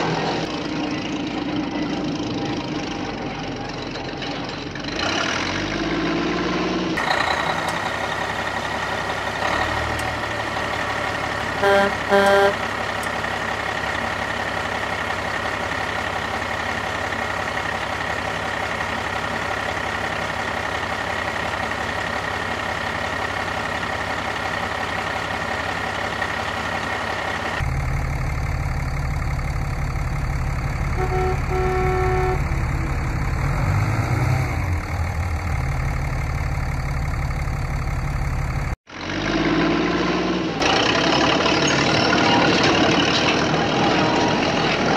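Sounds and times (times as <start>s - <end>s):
toy diesel engine sound: 7.0s - 27.6s, 29.3s - 33.2s
toy horn toots: 11.6s - 12.6s, 31.0s - 32.5s.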